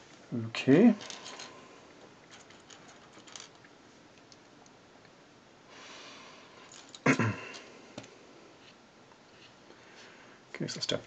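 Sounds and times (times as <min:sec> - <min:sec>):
soft breath: 0:05.7 - 0:06.8, 0:09.4 - 0:10.5.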